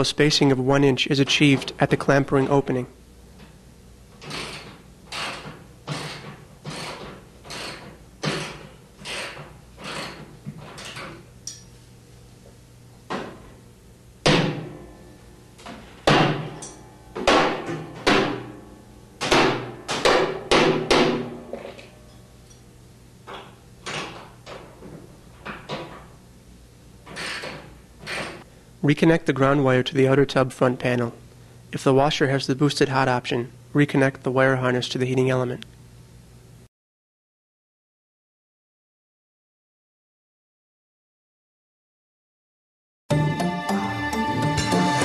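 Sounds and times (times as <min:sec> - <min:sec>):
tool tapping metal ring: 0:16.6 - 0:16.8.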